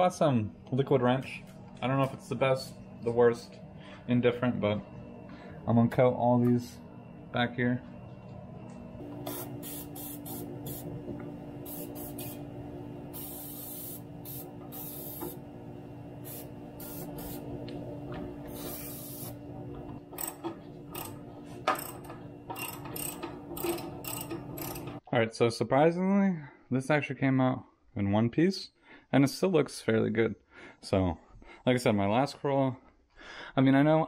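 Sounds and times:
aerosol spray hissing: 9.2s - 11.0s, 11.6s - 12.5s, 13.1s - 15.4s, 16.2s - 17.5s, 18.5s - 19.4s
socket ratchet clicking: 20.2s - 25.0s.

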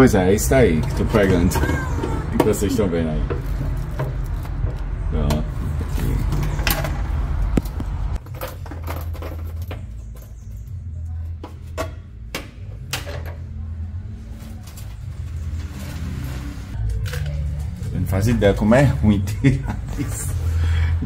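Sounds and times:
dirt and glass scraping: 14.8s - 16.8s.

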